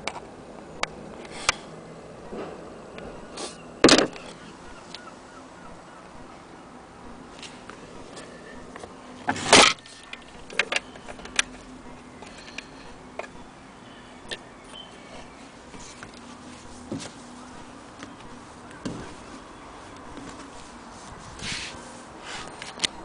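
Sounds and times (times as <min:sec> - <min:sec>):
faint steady hum: 0:00.0 - 0:23.0
handling knock: 0:18.8 - 0:19.2.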